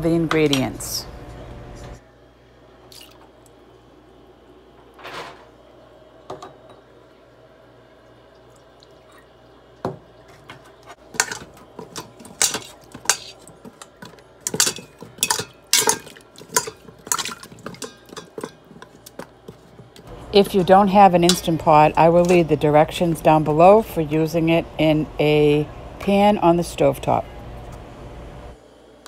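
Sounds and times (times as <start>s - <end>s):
metal spoon clinking against pot: 11.2s - 19.0s, 21.2s - 21.6s.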